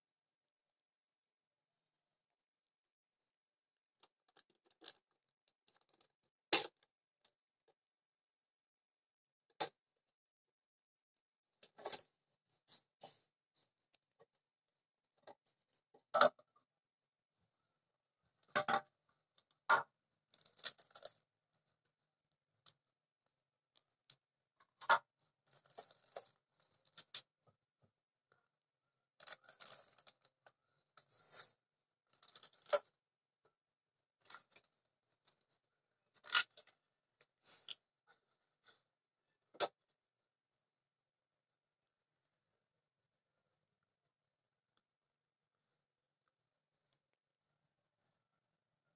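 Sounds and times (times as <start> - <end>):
plastic parts knocking and clicking: 18.4 - 18.9
plastic wrapping crinkling: 20.3 - 21.2, 25.5 - 27.2, 29.2 - 30.2, 32.1 - 32.9.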